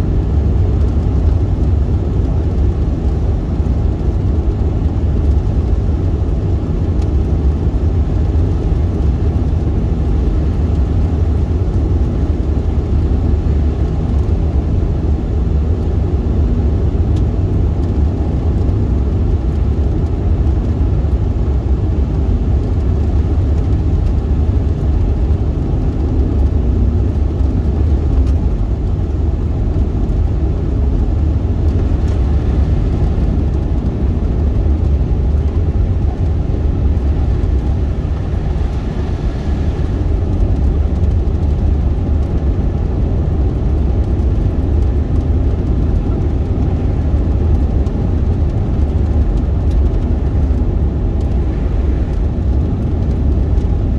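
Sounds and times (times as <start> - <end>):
car engine and tyre noise: 0.0 - 53.9.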